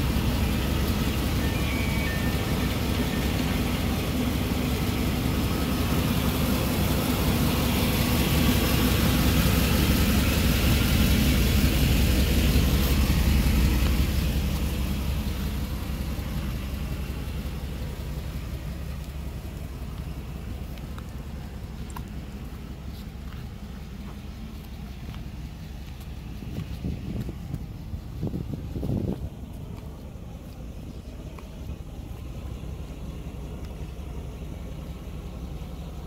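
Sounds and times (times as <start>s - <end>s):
car engine idling: 0.0s - 36.0s.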